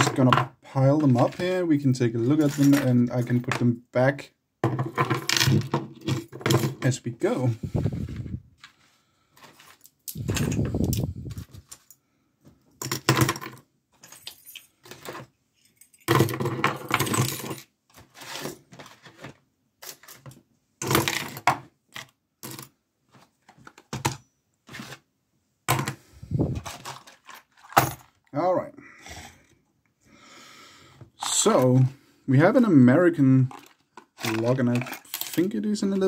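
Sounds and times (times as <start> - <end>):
metal padlocks clattering on wooden desk: 9.5 - 12.0, 12.7 - 17.7, 33.5 - 35.5.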